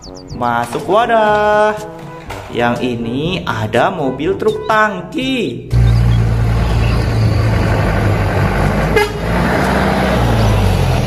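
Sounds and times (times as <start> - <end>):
horn toot: 4.0 - 5.0, 8.8 - 9.4
motor scooter passing: 5.7 - 11.0
truck diesel engine passing: 5.7 - 11.0.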